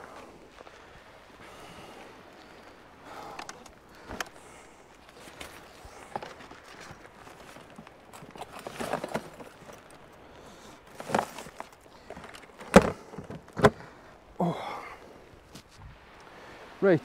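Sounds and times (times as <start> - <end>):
gentle shoreline: 0.0 - 17.0
handling rustles: 3.3 - 13.9.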